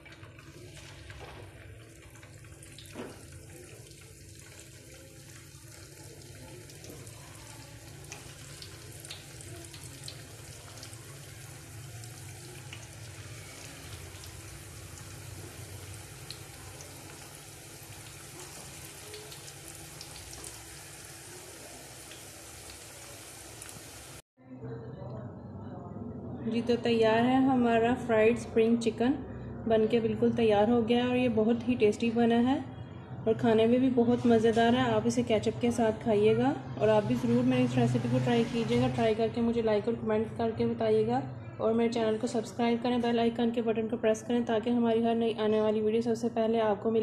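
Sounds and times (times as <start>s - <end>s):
chicken deep-frying in oil: 0.0s - 24.2s
oil popping and crackling: 0.0s - 24.2s.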